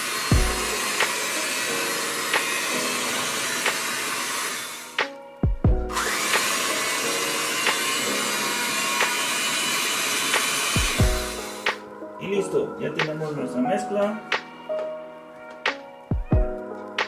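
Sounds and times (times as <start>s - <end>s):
electric hand mixer running: 0.0s - 11.8s.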